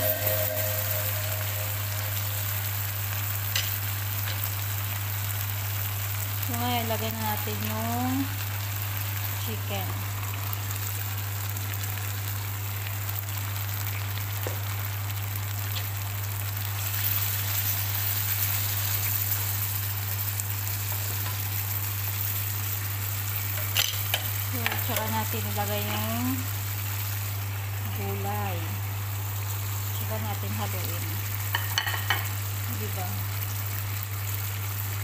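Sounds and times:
chicken sizzling in a pan: 0:00.0 - 0:35.0.

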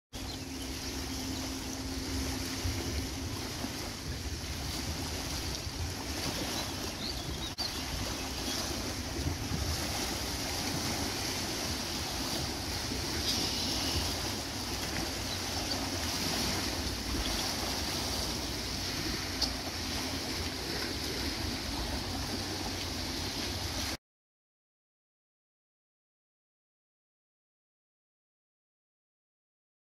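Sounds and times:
low steady hum: 0:00.2 - 0:23.9
waves washing on stony shore: 0:00.3 - 0:24.0
wind noise on microphone: 0:02.5 - 0:15.0.

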